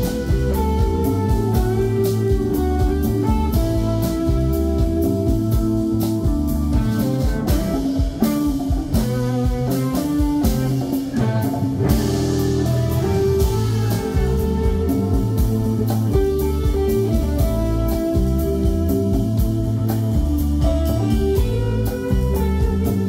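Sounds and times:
drum kit: 0:00.0 - 0:23.0
electric guitar lead: 0:00.0 - 0:23.0.

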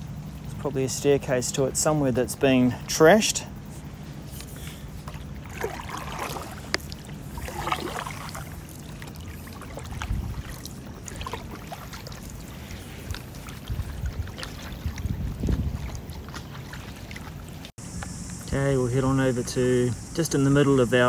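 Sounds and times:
paddle strokes in water: 0:03.6 - 0:17.7.

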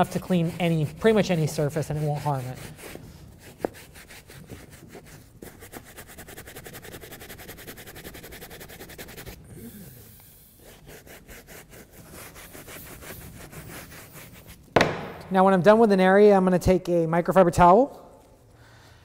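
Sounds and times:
brush scrubbing leather: 0:00.0 - 0:09.4, 0:10.6 - 0:14.6.

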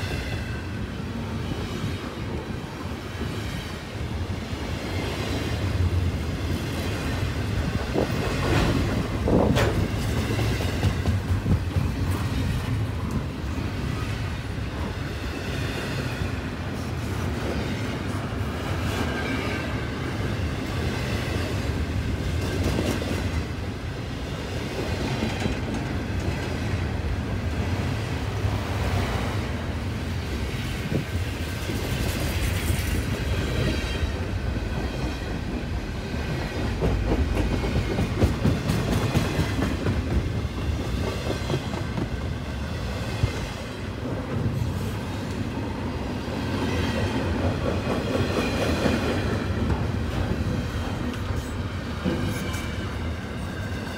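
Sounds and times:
train wheels rumbling on rail: 0:00.0 - 0:53.9
train car clanks: 0:07.6 - 0:13.3, 0:25.0 - 0:26.7, 0:47.4 - 0:53.9.

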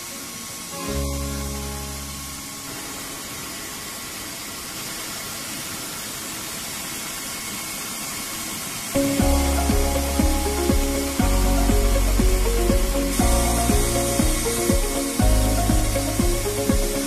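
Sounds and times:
steady hiss: 0:00.0 - 0:17.0
music with deep bass line: 0:09.0 - 0:17.0.

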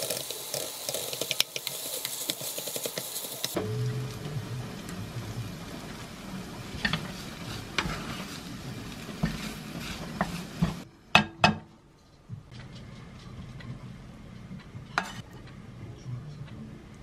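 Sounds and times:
light sizzle: 0:00.0 - 0:10.9
spatula scraping frying pan: 0:06.7 - 0:10.8.

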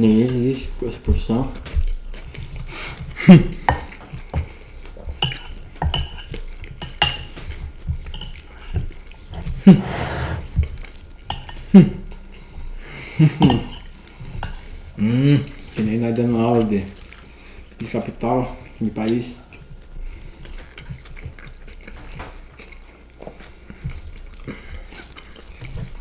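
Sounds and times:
close chewing of crunchy food: 0:00.0 - 0:26.0
cutlery clinking on ceramic plates: 0:05.2 - 0:07.4.

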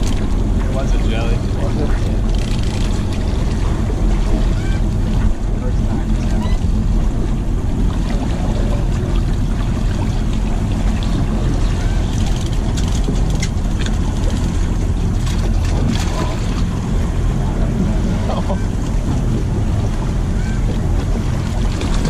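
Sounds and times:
boat engine idling: 0:00.0 - 0:22.0
wind on microphone: 0:00.0 - 0:22.0
fish splashing and knocking: 0:07.9 - 0:16.8.

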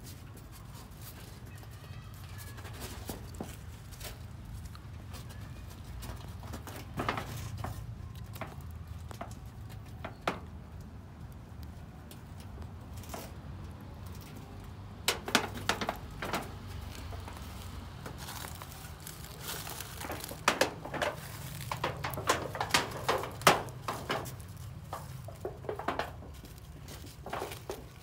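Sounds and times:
puppies rustling through leaves: 0:16.8 - 0:21.8.

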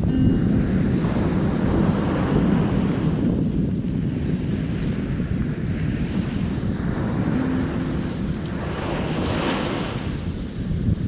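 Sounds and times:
wind buffeting microphone: 0:00.0 - 0:11.0
waves washing up a pebble shore: 0:03.9 - 0:10.7.

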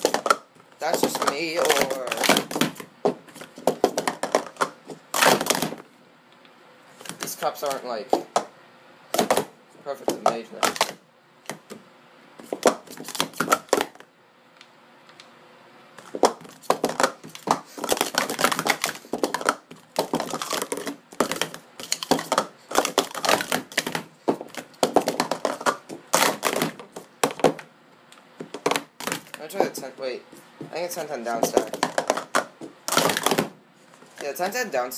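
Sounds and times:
plastic cups clacking: 0:00.0 - 0:05.8, 0:09.2 - 0:11.7, 0:12.5 - 0:14.0, 0:16.0 - 0:27.6, 0:28.4 - 0:29.9, 0:31.0 - 0:33.6.

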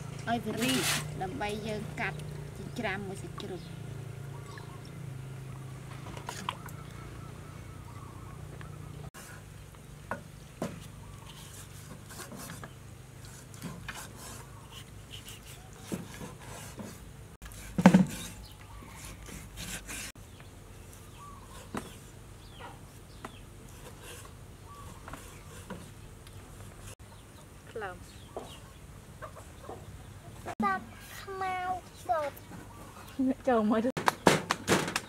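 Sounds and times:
peeler scraping gourd skin: 0:00.5 - 0:01.2, 0:10.8 - 0:20.2, 0:23.7 - 0:27.0.

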